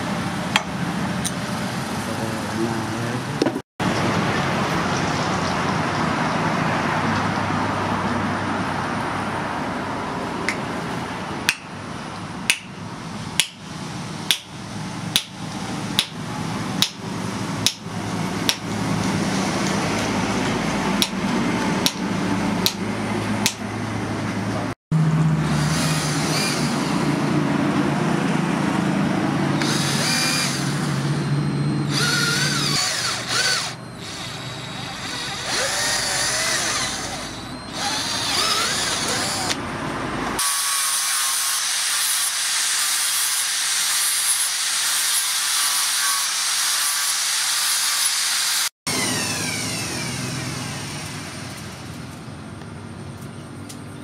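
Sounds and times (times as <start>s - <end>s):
hammer striking steel punch: 12.5s - 12.8s, 14.3s - 14.5s, 15.1s - 15.4s, 16.0s - 16.2s
angle grinder whining on steel: 25.4s - 27.3s, 29.6s - 39.6s, 40.2s - 52.0s
cordless drill squealing: 25.6s - 27.1s, 29.6s - 39.6s, 40.4s - 51.7s.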